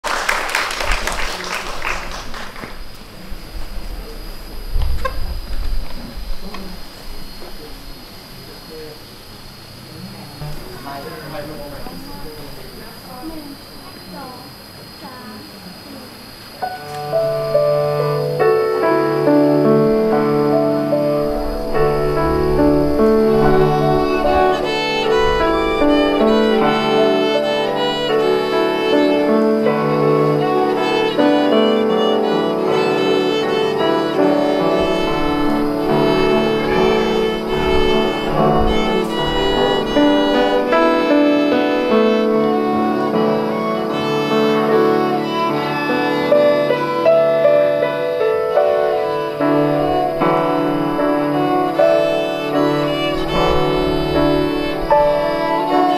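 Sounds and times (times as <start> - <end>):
cello bowing: 9.6 - 14.2, 16.6 - 55.9
grand piano: 16.2 - 55.9
violin melody: 16.6 - 55.9.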